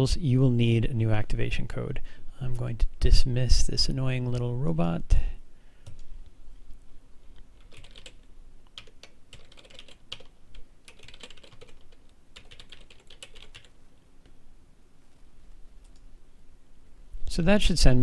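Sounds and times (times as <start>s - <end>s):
typing on computer keyboard: 7.6s - 13.8s.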